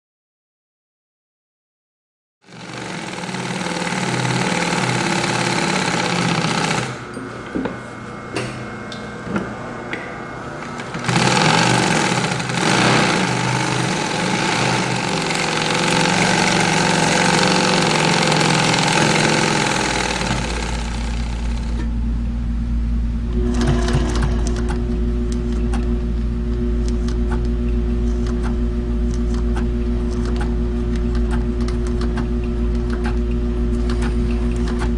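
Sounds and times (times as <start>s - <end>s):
sewing machine stitching: 2.5s - 7.0s, 10.8s - 21.9s, 23.4s - 24.8s.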